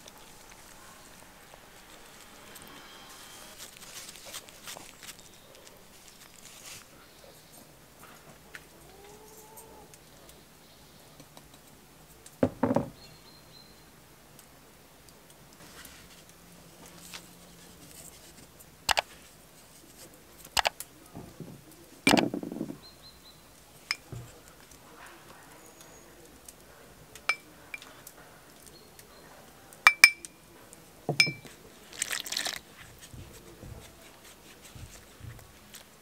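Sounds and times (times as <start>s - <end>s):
bowls clinking and knocking: 23.8s - 24.3s, 29.9s - 30.3s, 31.1s - 32.6s.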